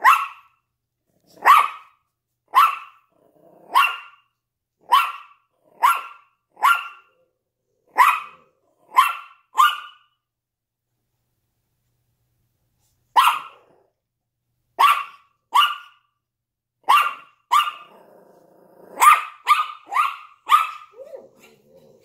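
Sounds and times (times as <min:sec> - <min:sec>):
small dog barking: 0:00.0 - 0:00.6, 0:01.3 - 0:07.2, 0:07.9 - 0:10.2, 0:13.1 - 0:13.8, 0:14.8 - 0:16.1, 0:16.8 - 0:18.0, 0:18.9 - 0:21.6.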